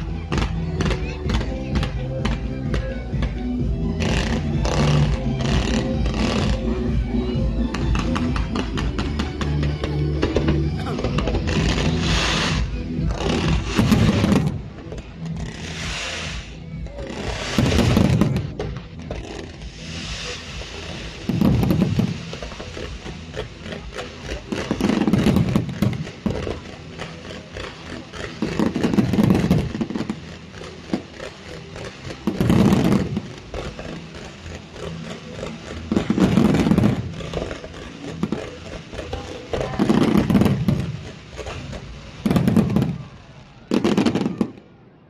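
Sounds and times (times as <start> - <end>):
fireworks crackling: 0.0 - 45.0
deep firework booms: 21.0 - 22.7.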